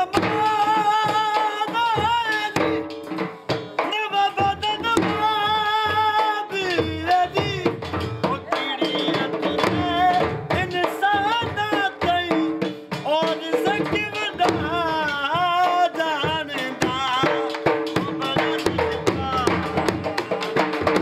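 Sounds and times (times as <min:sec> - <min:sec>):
drum beaten with sticks: 0:00.0 - 0:21.0
man singing into a microphone: 0:00.0 - 0:21.0
steady held tones: 0:07.2 - 0:10.8.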